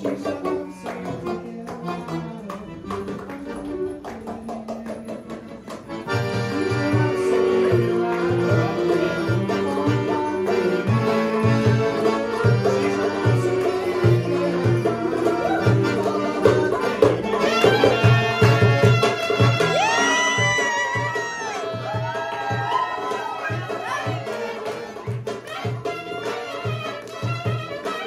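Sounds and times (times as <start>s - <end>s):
clarinets and accordion melody: 0.0s - 21.6s, 23.0s - 28.0s
hand drum rhythm: 0.0s - 28.0s
violin: 5.5s - 22.2s, 22.9s - 28.0s.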